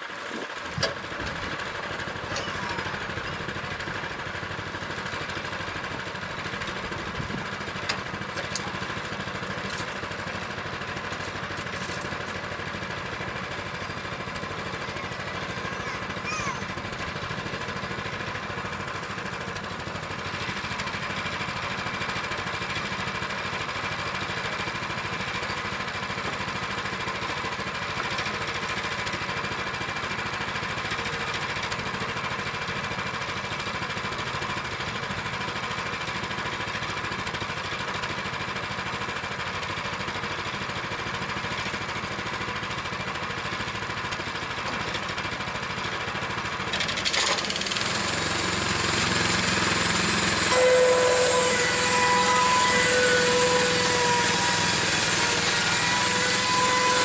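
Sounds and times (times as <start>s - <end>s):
sawmill engine running: 0.0s - 57.0s
saw cutting through wood: 1.4s - 23.7s, 46.5s - 57.0s.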